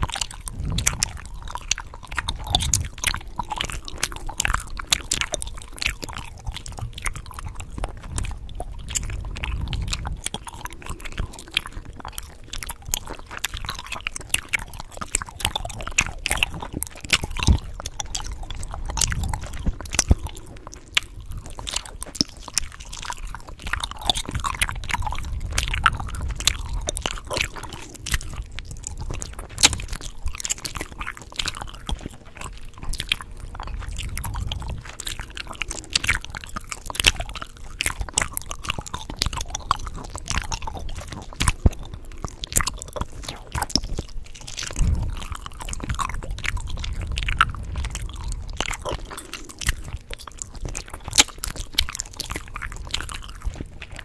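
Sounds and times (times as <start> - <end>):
gum chewing mouth clicks: 0.0 - 54.0.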